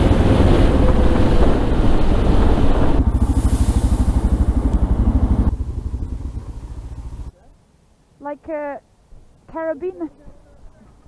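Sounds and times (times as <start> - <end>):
wind rush: 0.0 - 6.1
motorcycle engine: 0.0 - 7.4.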